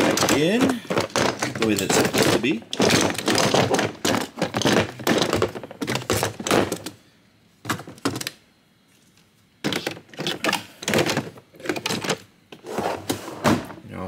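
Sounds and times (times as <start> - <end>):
power tools knocking in plastic drawer: 0.0 - 6.8.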